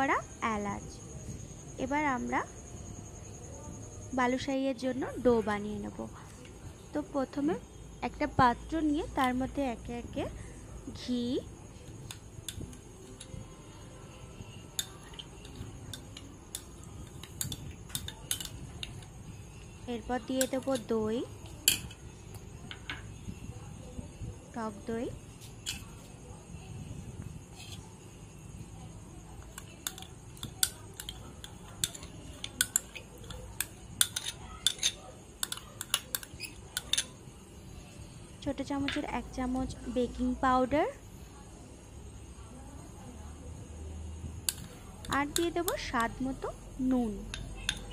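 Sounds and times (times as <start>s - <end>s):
low background noise: 0.0s - 47.9s
spoon clinking and scraping bowl: 11.9s - 13.5s, 14.4s - 22.1s, 25.6s - 26.1s, 29.4s - 37.2s, 44.5s - 46.2s, 47.3s - 47.9s.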